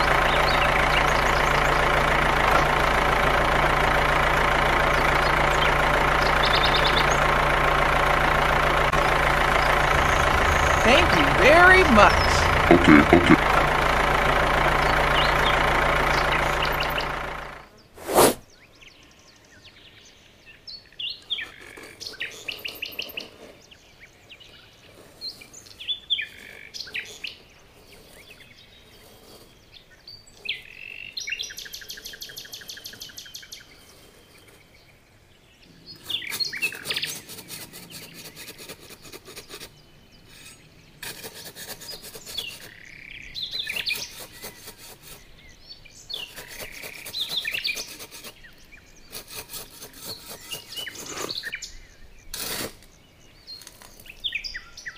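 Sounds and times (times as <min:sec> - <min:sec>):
birds chirping: 0:00.0 - 0:54.9
tools scraping sand: 0:18.0 - 0:18.4, 0:27.7 - 0:29.7, 0:33.7 - 0:34.8, 0:36.0 - 0:51.6, 0:52.3 - 0:54.2.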